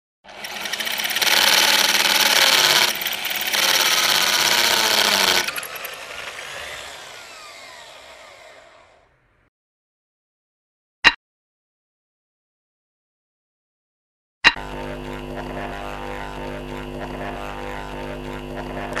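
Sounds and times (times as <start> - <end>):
electric drill drilling into brick: 0.2 - 9.5, 14.6 - 19.0.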